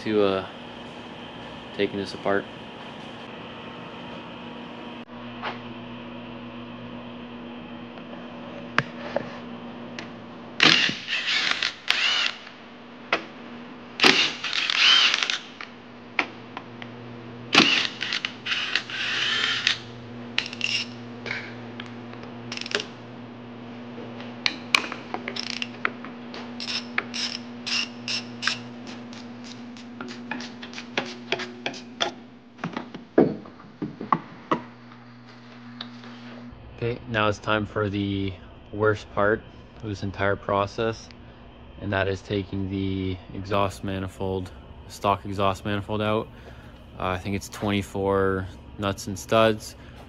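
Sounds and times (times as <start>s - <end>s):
ratchet wrench clicking: 14.0s - 15.5s, 20.4s - 20.9s, 22.5s - 22.9s, 25.4s - 25.7s, 26.6s - 28.6s.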